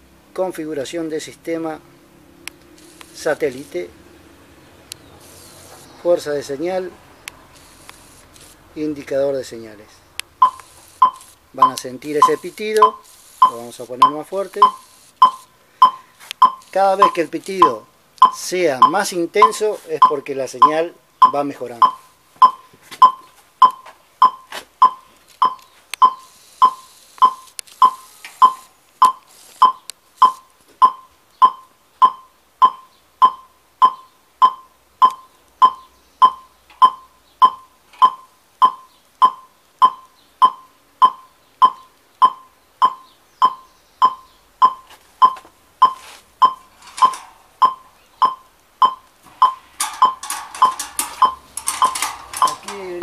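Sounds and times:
short mid-pitched beeps: 10.4 - 53.0
clattering: 46.7 - 47.5, 49.3 - 53.0.

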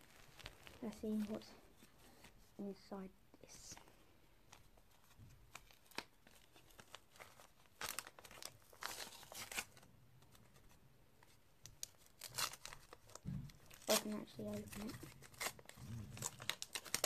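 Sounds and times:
wrapping paper tearing: 5.5 - 9.9, 11.7 - 17.0.

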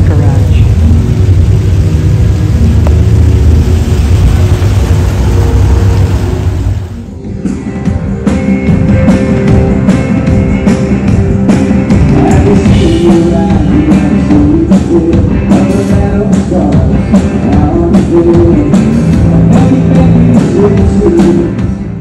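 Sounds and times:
rock band playing live: 6.7 - 22.0
drum kit steady beat: 7.4 - 22.0.

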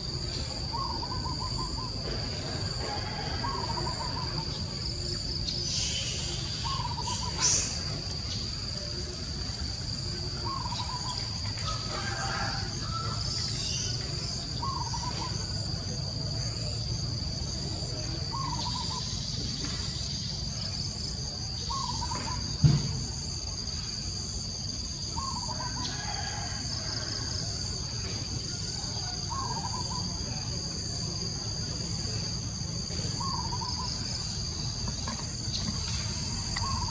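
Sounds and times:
insects droning: 0.0 - 36.9
sharp thump: 22.6 - 23.0.

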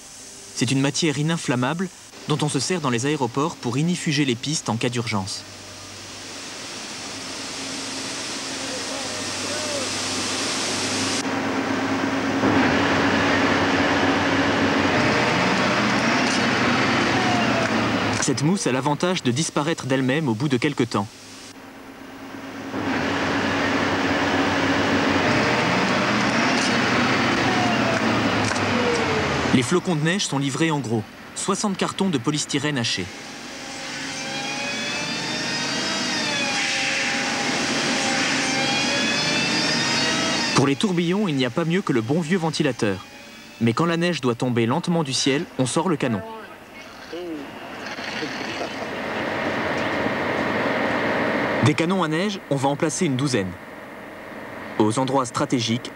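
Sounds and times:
fan rushing air with whining motor: 0.0 - 55.9
low machinery hum: 0.0 - 55.9
hose spraying foam: 6.7 - 11.2.

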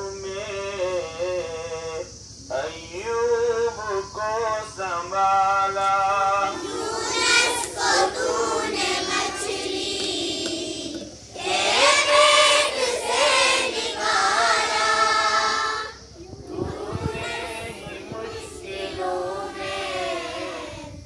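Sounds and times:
children singing in unison: 6.0 - 21.0.

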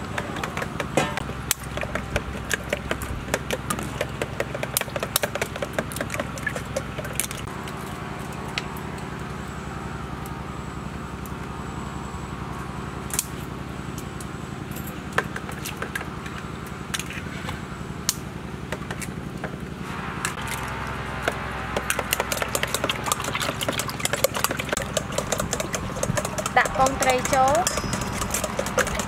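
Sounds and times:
low motor hum: 0.0 - 29.0
eggs cracking: 21.8 - 29.0
whisking clicks: 21.8 - 29.0
spoons clicking against bowls: 24.0 - 29.0.

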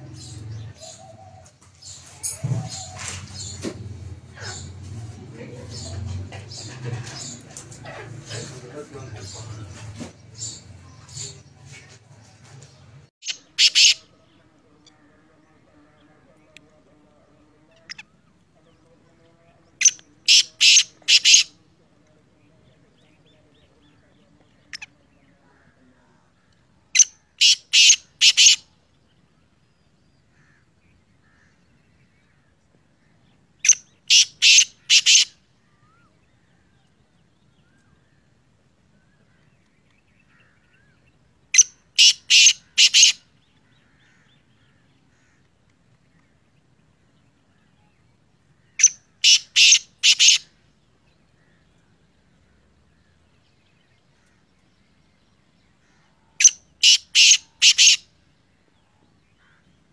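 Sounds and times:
francolin harsh calling: 13.2 - 14.3, 19.8 - 21.6, 26.9 - 28.8, 33.6 - 36.1, 40.3 - 45.4, 48.6 - 50.6, 55.8 - 58.2.

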